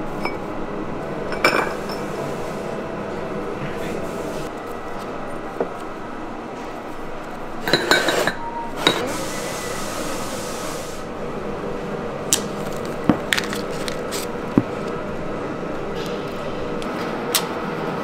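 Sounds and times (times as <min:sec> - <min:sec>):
steady factory hum: 0:00.0 - 0:18.0
pots and lids clinking: 0:01.3 - 0:02.1, 0:07.6 - 0:09.1
hiss: 0:09.0 - 0:11.1.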